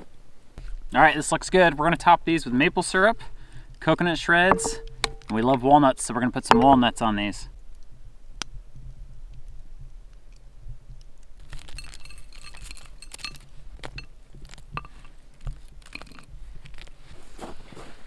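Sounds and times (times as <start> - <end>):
glass jars and lids clinking: 4.5 - 5.3, 6.5 - 7.0.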